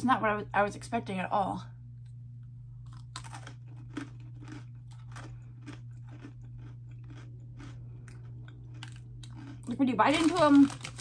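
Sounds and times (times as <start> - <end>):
low hum: 0.0 - 11.0
person chewing crunchy snack: 2.8 - 11.0.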